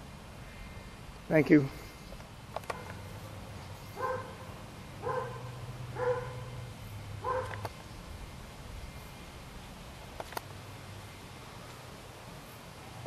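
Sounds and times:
dog barking: 0:04.0 - 0:04.4, 0:05.0 - 0:06.5, 0:07.2 - 0:07.6.

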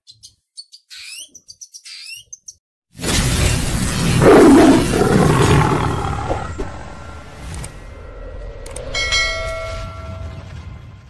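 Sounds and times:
rush of noise: 0:04.0 - 0:08.8
click: 0:08.6 - 0:08.9.

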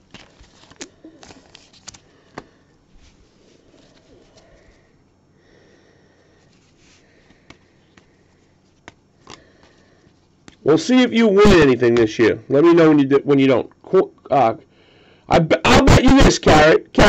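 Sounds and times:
cards clicking and tapping: 0:00.0 - 0:02.6, 0:08.8 - 0:09.7.

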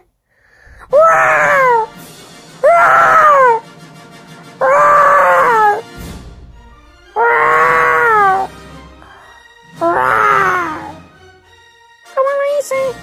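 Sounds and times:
cat meowing: 0:04.6 - 0:05.8, 0:07.2 - 0:08.5, 0:09.8 - 0:11.0.

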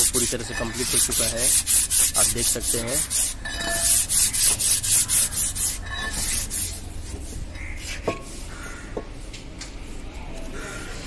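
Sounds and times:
rapid rubbing strokes: 0:00.0 - 0:08.6.

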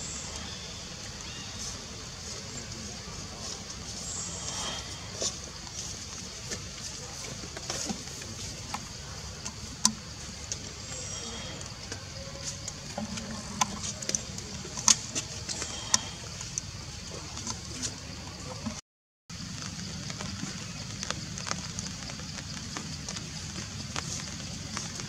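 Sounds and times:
high hiss: 0:00.0 - 0:07.4
faint chirps: 0:00.0 - 0:18.7.

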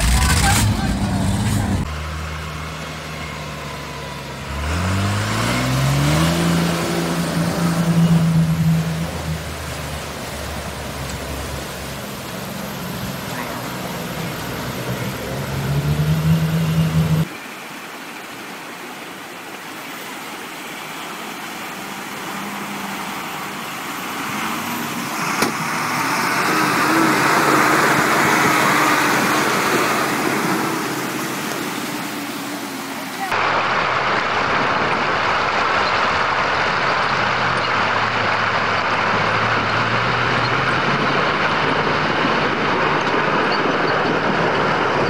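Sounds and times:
truck engine running: 0:00.0 - 0:17.3, 0:33.4 - 0:45.0
water rushing and splashing: 0:00.0 - 0:45.0.

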